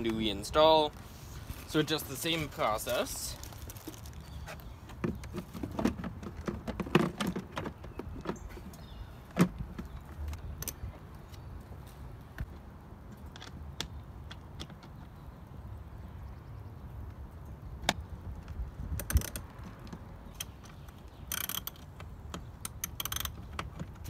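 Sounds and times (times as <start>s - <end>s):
plastic clacks and knocks: 3.8s - 10.8s
wind rumble on microphone: 15.0s - 20.3s.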